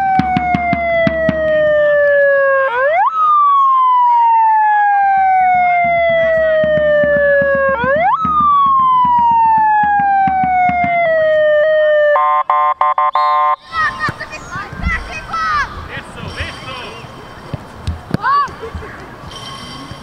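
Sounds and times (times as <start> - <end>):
emergency vehicle siren wailing: 0.0 - 13.9.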